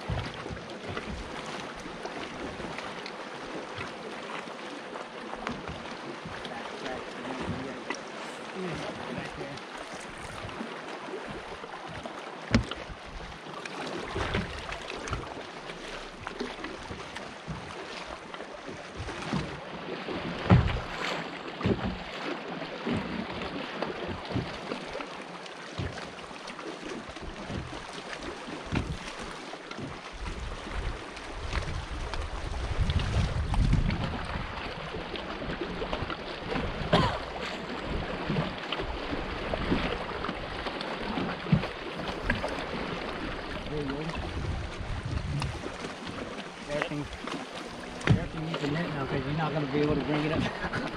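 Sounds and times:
light knocks on boat: 0.0s - 1.4s, 11.9s - 17.9s, 18.7s - 19.6s, 20.4s - 22.2s, 22.9s - 25.0s, 25.7s - 26.2s, 28.7s - 30.0s, 44.4s - 48.6s
water lapping against hull: 0.0s - 50.9s
thumps on kayak: 0.1s - 1.4s, 12.5s - 13.2s, 20.4s - 22.1s, 28.7s - 30.0s, 44.4s - 48.8s
wind noise: 30.3s - 34.6s, 44.2s - 45.8s.

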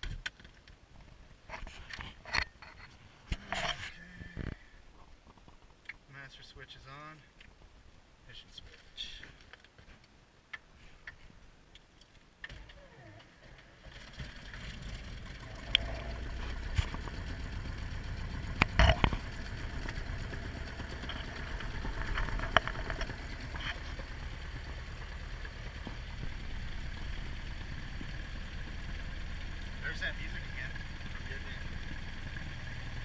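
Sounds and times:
aircraft engine starting and idling: 12.9s - 33.0s.

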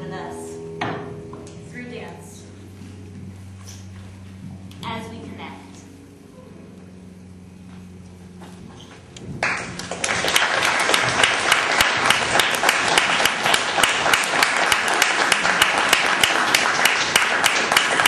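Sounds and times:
audience applauding: 9.4s - 18.0s.

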